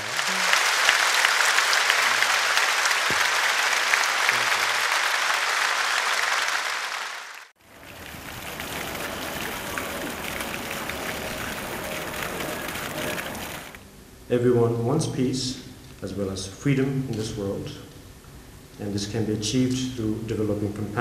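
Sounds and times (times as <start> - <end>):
audience applauding: 0.0 - 13.8
outdoor background noise: 7.6 - 18.8.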